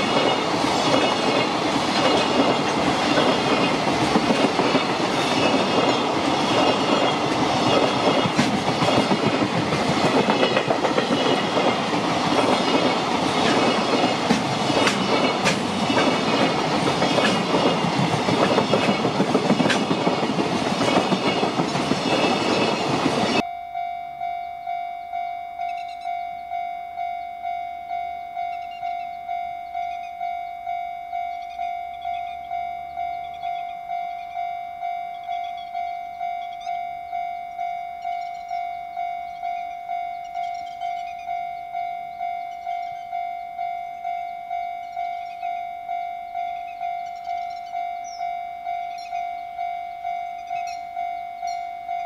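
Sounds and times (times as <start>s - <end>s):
train wheels clattering over rail joints: 0.0s - 23.4s
pulsing ringing tone: 23.3s - 52.0s.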